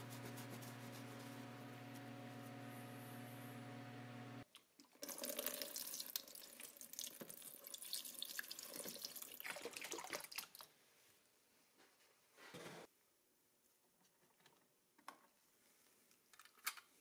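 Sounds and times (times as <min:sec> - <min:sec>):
liquid pouring and splashing: 0:04.8 - 0:10.7.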